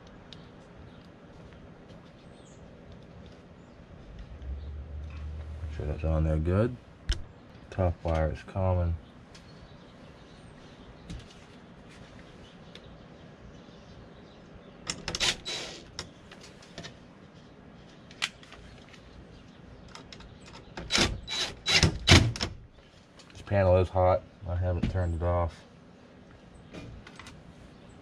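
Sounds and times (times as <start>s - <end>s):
cordless driver bursts: 15.1s - 15.9s.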